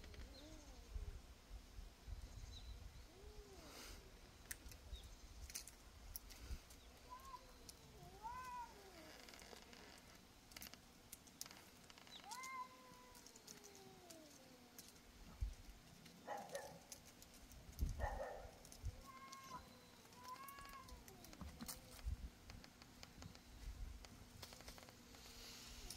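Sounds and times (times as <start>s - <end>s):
cat meowing: 7.1s - 9.1s, 12.2s - 14.5s, 19.0s - 21.3s.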